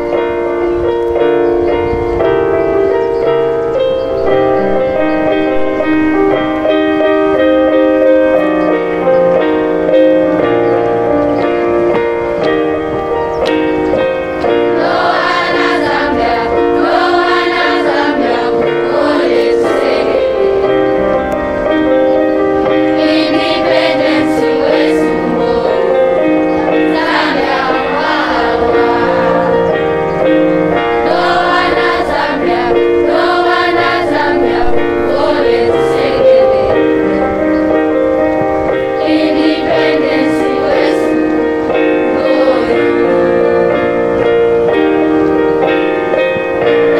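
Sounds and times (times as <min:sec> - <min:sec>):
children's choir singing: 0:13.8 - 0:46.9.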